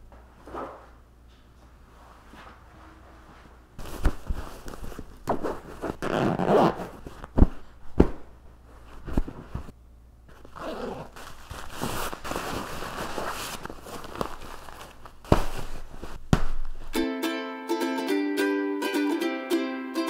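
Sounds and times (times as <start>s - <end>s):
fabric rustling: 1.8s - 17.0s
zipper being worked: 5.3s - 7.2s, 10.4s - 13.7s
soft thumps of cushions: 15.2s - 17.0s.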